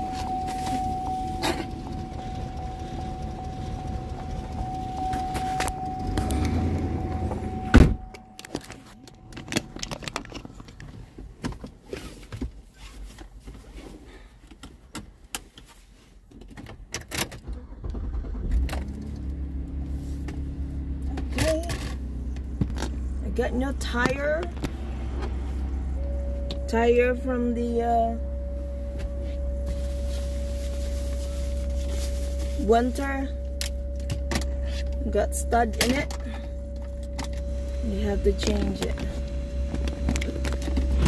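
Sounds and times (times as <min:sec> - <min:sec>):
steady high tone: 0:00.0 - 0:10.1, 0:23.3 - 0:41.0
car engine running: 0:00.0 - 0:11.3, 0:17.6 - 0:41.0.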